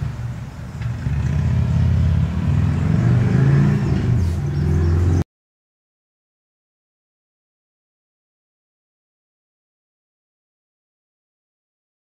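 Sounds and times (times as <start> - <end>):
vehicle engine running: 0.0 - 5.2.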